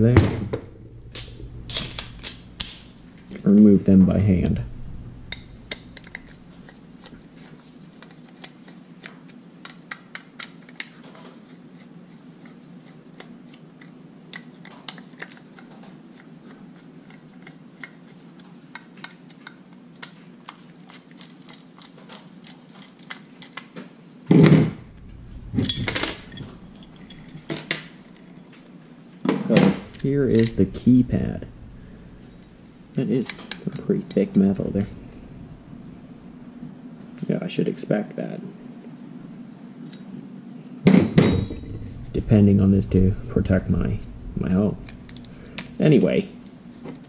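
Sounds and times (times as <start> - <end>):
metallic clinks and knocks: 25.0 - 27.9, 41.2 - 42.1.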